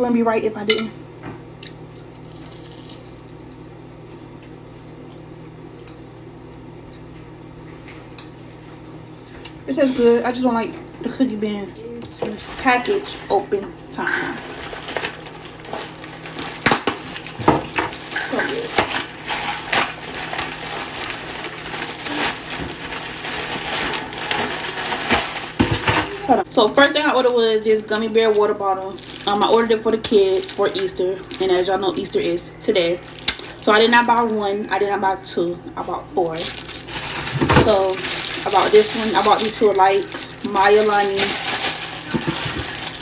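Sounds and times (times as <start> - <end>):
plastic bag tearing and crinkling: 14.3 - 32.4, 33.0 - 34.3, 36.4 - 43.0.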